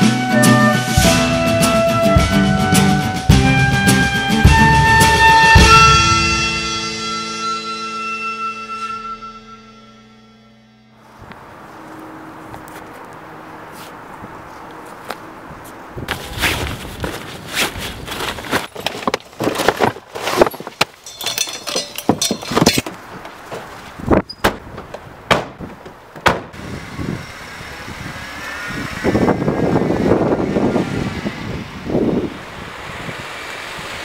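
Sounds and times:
gear knocking and thudding: 0:16.0 - 0:26.6
car door slams: 0:24.4 - 0:26.6
car engine pulling away: 0:26.6 - 0:34.0.

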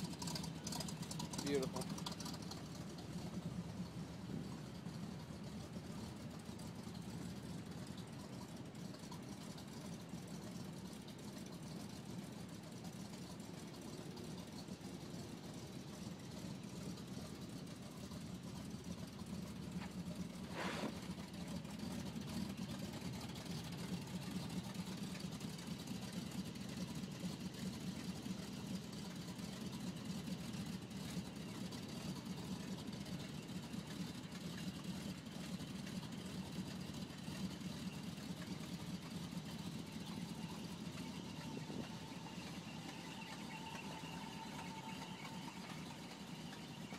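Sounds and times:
car engine idling: 0:00.0 - 0:46.9.

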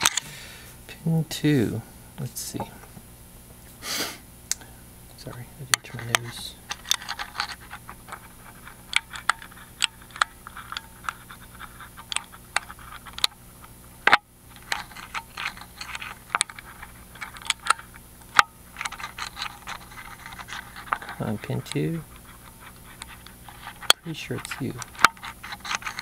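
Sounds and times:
lock pick clicking and scraping: 0:00.0 - 0:00.2, 0:05.7 - 0:13.4, 0:14.1 - 0:26.0.

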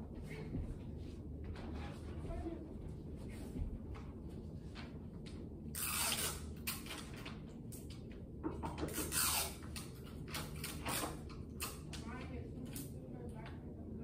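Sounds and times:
scraping and creaking sounds: 0:00.0 - 0:05.0
steady low hum: 0:00.0 - 0:14.0.

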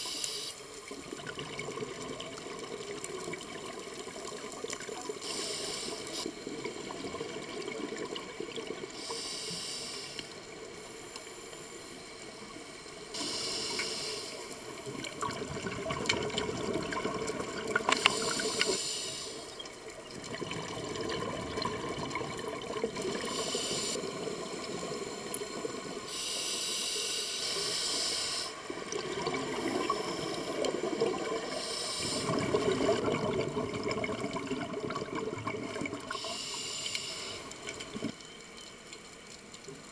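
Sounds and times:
regulator hissing inhalations: 0:00.0 - 0:00.6, 0:05.2 - 0:06.3, 0:08.9 - 0:11.9, 0:13.1 - 0:14.7, 0:17.9 - 0:19.6, 0:23.2 - 0:25.3, 0:26.0 - 0:28.7, 0:31.4 - 0:32.5, 0:36.1 - 0:37.7
bubbling exhalations: 0:32.1 - 0:36.2.

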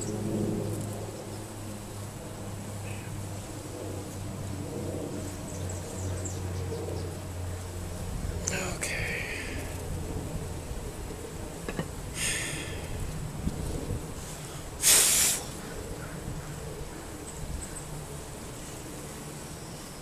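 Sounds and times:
short loud hiss: 0:14.8 - 0:15.5.

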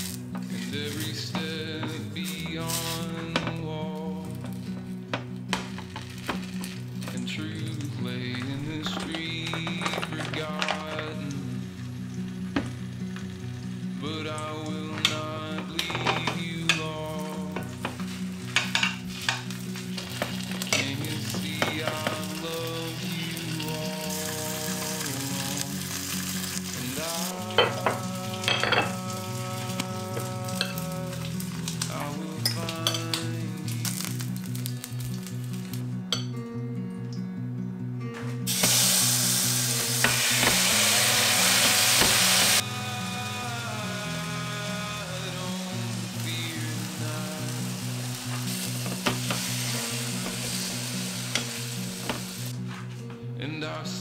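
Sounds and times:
hissing stir from pot: 0:00.0 - 0:03.6, 0:38.5 - 0:52.6
slices sizzling in oil: 0:00.0 - 0:35.9, 0:38.5 - 0:52.6
soft background music: 0:00.0 - 0:54.0.

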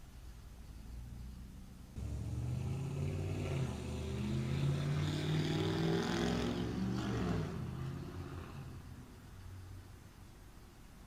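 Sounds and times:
car engine accelerating past: 0:00.9 - 0:09.1.

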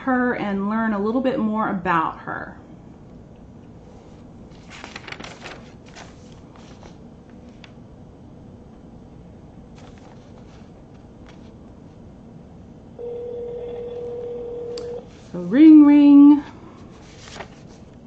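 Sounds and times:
steady telephone tone: 0:13.0 - 0:15.1.

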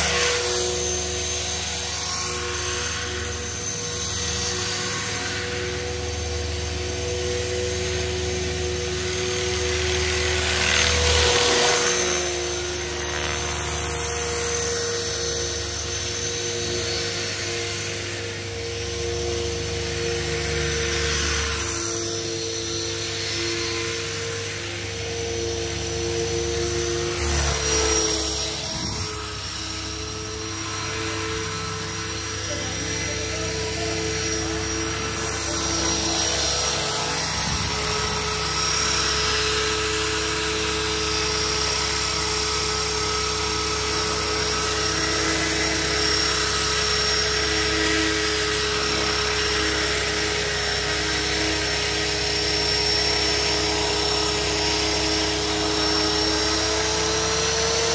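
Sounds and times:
low rotor hum: 0:00.0 - 0:57.9
rc helicopter whine: 0:00.0 - 0:57.9.

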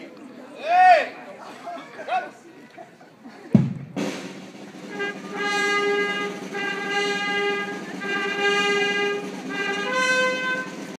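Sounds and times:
brass band playing held chords: 0:03.6 - 0:11.0.

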